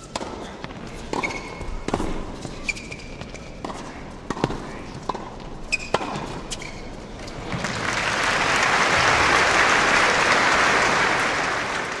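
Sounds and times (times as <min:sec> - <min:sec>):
crowd applause: 0:07.5 - 0:12.0.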